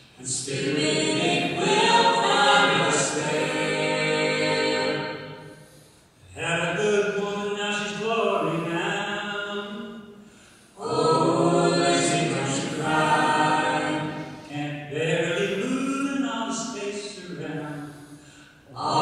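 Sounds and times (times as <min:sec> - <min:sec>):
group singing a cappella harmony: 0:00.1 - 0:06.9, 0:10.8 - 0:15.7, 0:17.4 - 0:19.0.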